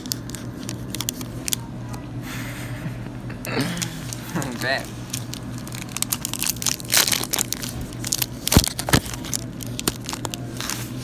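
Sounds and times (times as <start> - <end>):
candy wrapper crinkling and tearing: 0.0 - 1.6, 3.8 - 11.0.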